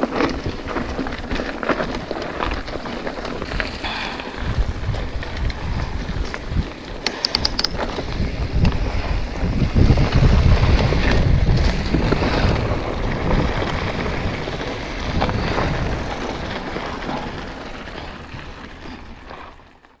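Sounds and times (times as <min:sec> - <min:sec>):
wind on microphone: 0:00.0 - 0:19.3
tyres rumbling over dirt: 0:00.0 - 0:20.0
quick clicks: 0:07.0 - 0:07.8.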